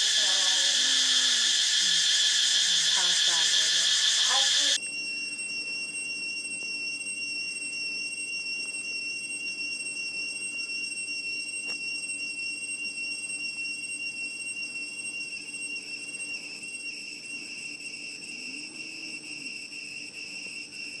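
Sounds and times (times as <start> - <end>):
insect chorus: 0.0 - 5.0, 15.3 - 21.0.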